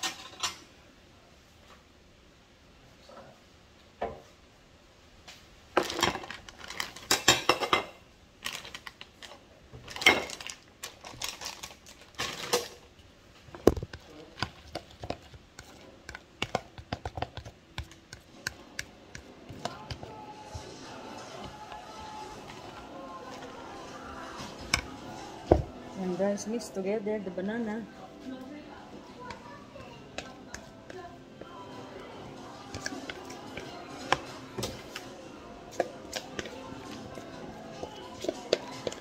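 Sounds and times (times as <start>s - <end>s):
dishes and utensils clattering: 0.0s - 0.7s, 5.8s - 8.0s, 9.9s - 10.5s, 29.2s - 35.1s.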